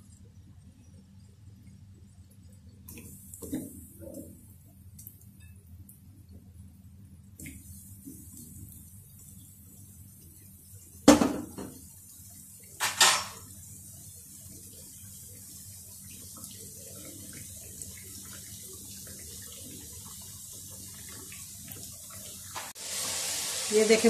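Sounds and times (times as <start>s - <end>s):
potatoes frying in hot oil: 1.1s - 24.0s
loud sudden sizzles: 22.6s - 24.0s.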